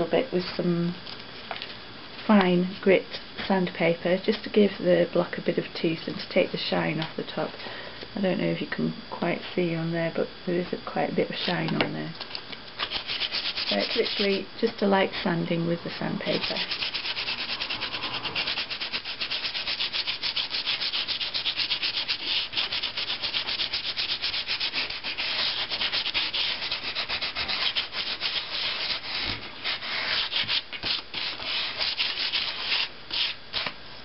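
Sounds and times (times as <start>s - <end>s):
sandpaper rubbing on rubber block: 12.9s - 14.4s, 16.3s - 33.7s.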